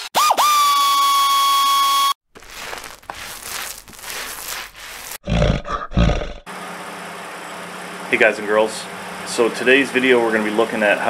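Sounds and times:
scratchy rustling noise: 2.3s - 5.2s
deep animal roar: 5.2s - 6.5s.

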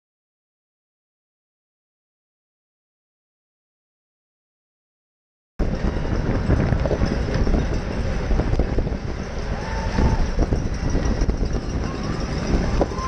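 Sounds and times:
bicycle tyre and road noise: 5.6s - 13.0s
wind buffeting microphone: 5.6s - 13.0s.

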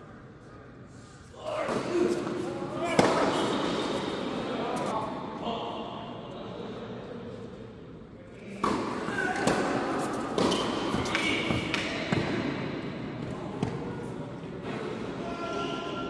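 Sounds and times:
voices in a large hall: 0.0s - 16.0s
racket hitting tennis ball: 1.6s - 4.2s, 8.6s - 12.5s.

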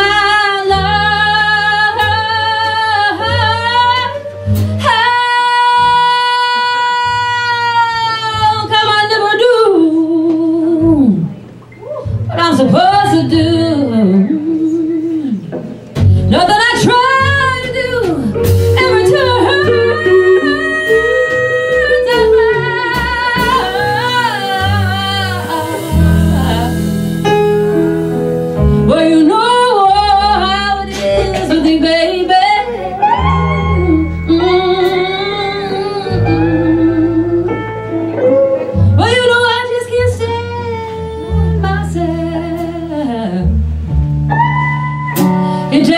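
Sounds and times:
bass notes: 0.0s - 45.9s
vibrato lead melody: 16.2s - 45.9s
electric keyboard: 17.3s - 39.4s.

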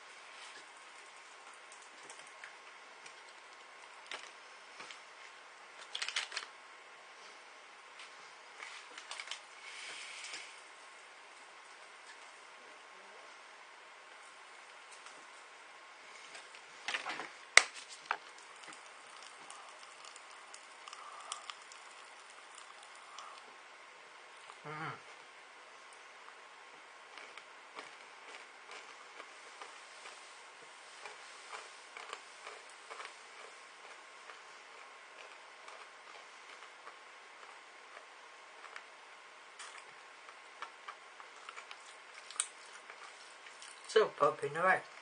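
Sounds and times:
popping candy crackling: 17.0s - 23.5s.

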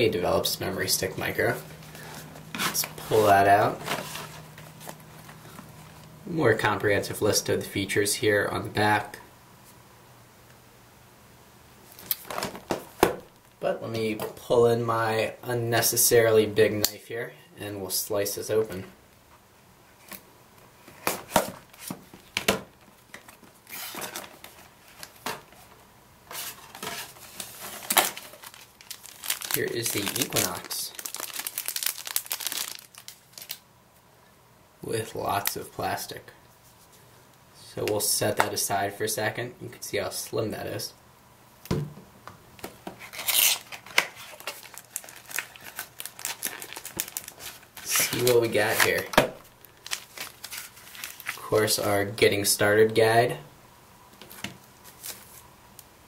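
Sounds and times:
cardboard rubbing and rustling: 2.5s - 5.4s.

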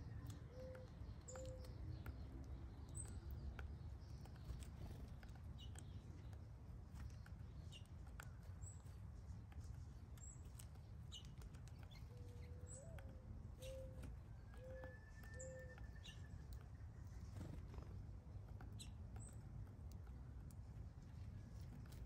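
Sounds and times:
woodpecker pecking at feeder: 0.1s - 22.0s
bird cooing: 0.5s - 0.8s, 12.2s - 15.8s.

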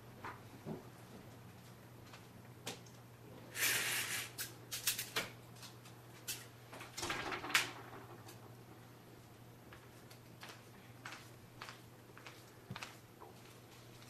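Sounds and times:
low steady hum: 4.6s - 14.0s.

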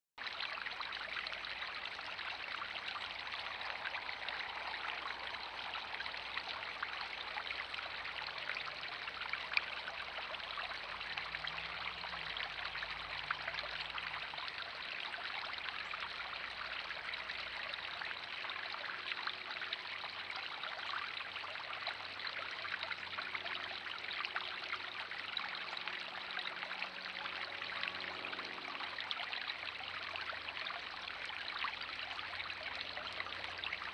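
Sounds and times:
fountain bubbler splashing: 0.2s - 33.9s.

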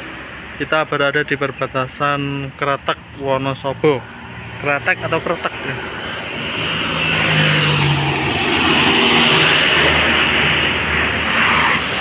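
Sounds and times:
car engine passing close: 2.8s - 12.0s.

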